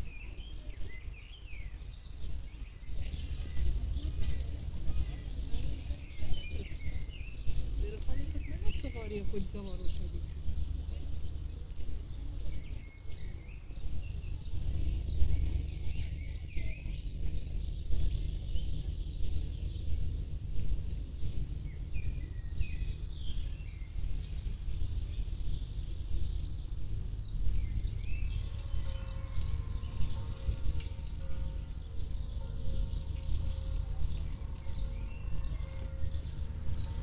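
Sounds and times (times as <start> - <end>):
birds chirping and singing: 0.0 - 37.0
steady low rumble: 0.0 - 37.0.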